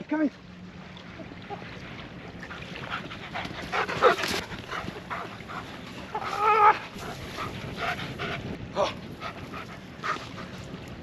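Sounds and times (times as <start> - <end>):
dog panting: 2.9 - 5.8, 7.0 - 8.5.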